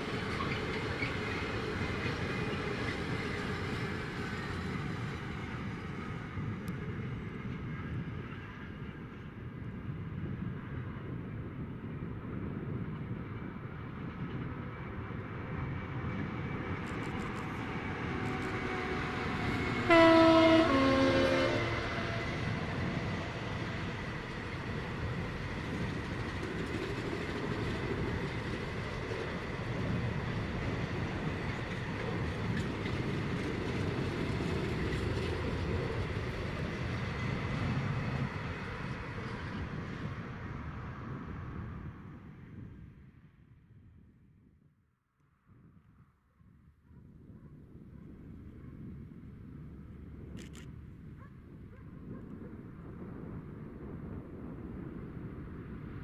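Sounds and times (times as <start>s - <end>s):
locomotive two-tone horn: 18.0s - 22.6s.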